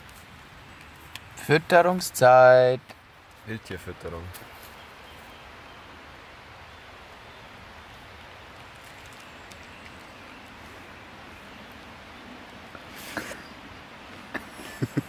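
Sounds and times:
outdoor background rush: 0.0s - 15.0s
faint clicks: 8.5s - 10.2s.

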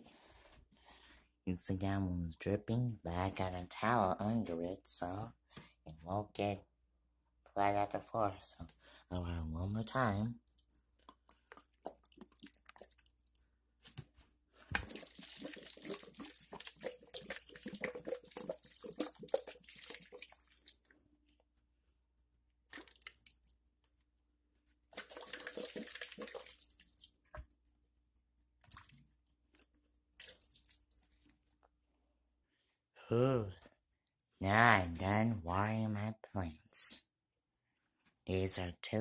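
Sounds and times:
water pouring into soil: 10.5s - 13.4s, 14.8s - 20.8s, 22.7s - 23.6s, 24.9s - 27.2s, 28.6s - 29.2s, 30.1s - 31.0s.

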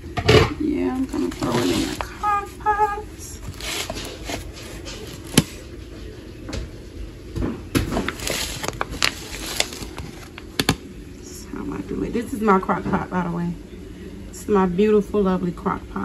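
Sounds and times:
kitchen handling rustles and clicks: 3.4s - 5.6s.

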